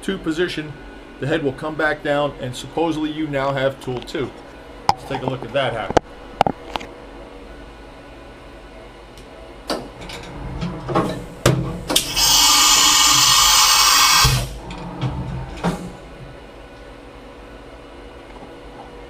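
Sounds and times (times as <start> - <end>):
compressed air hiss: 12.0 - 14.6.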